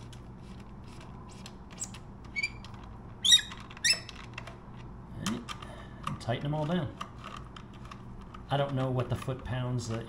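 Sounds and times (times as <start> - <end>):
high squeaks: 1.8 - 4.2.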